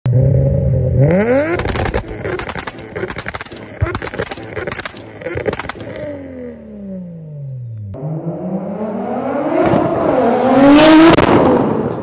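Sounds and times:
car engine revving: 0.1 - 12.0
exhaust popping and crackling: 1.0 - 6.8.

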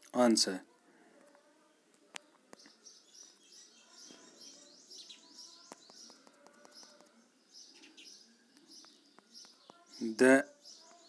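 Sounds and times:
bird chirping: 2.0 - 11.0
faint clicks: 5.7 - 7.2.

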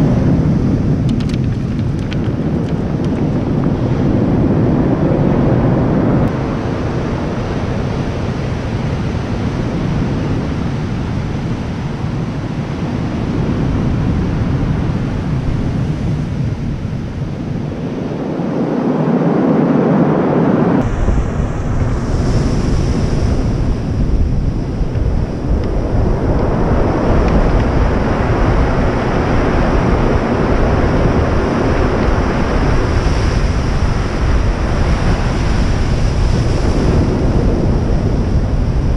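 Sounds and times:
wind buffeting microphone: 0.0 - 38.9
surf breaking on stony beach: 18.6 - 38.9.

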